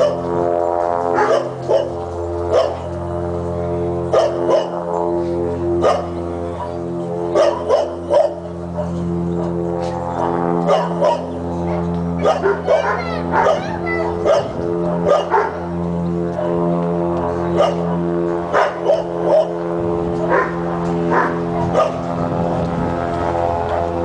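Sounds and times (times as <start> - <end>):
dog barking: 0.0 - 0.2, 1.2 - 2.9, 4.1 - 4.8, 5.8 - 6.8, 7.4 - 9.0, 10.7 - 11.3, 12.2 - 15.6, 17.6 - 17.9, 18.6 - 19.6, 20.3 - 22.0
blimp engine drone: 0.0 - 24.0.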